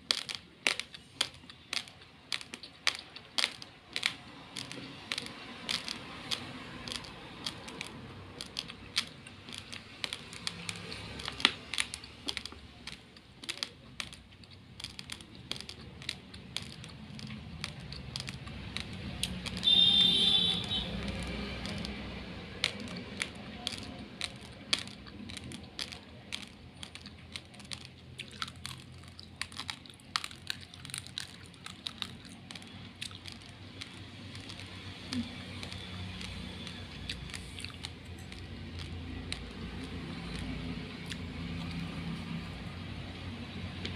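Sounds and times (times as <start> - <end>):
raw rice being chewed: 0.0 - 43.9.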